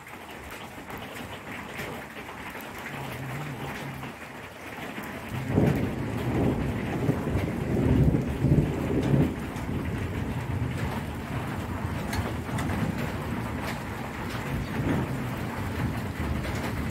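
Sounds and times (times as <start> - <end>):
heavy rain falling: 0.0 - 16.9.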